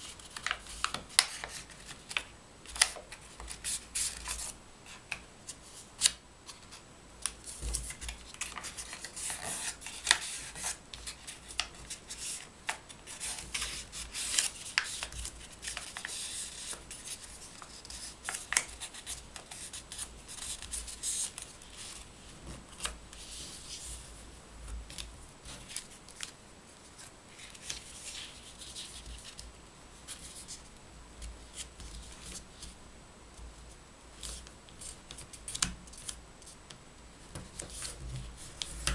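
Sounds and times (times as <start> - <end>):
paper rustling and crackling: 0.0 - 5.2, 6.0 - 23.9, 24.9 - 29.5.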